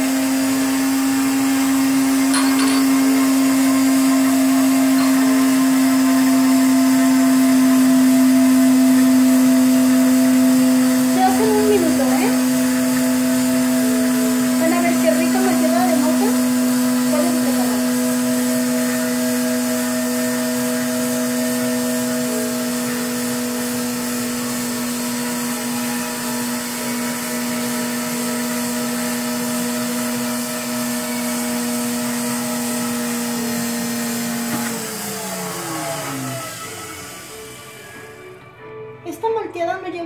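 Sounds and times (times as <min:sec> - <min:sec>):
drink mixer motor whining: 0:00.0 - 0:38.6.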